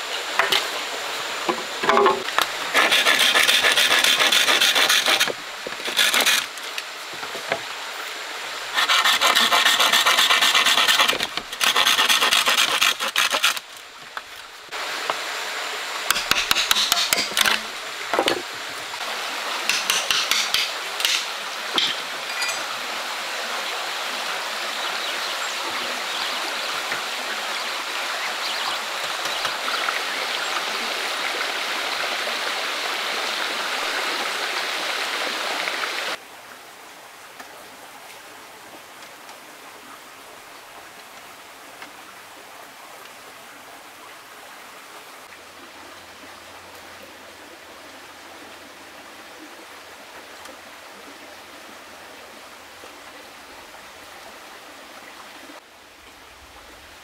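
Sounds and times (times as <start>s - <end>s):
stream rushing: 0.0s - 57.0s
rasping strokes on wood: 2.7s - 6.5s, 8.8s - 13.6s, 16.1s - 17.5s.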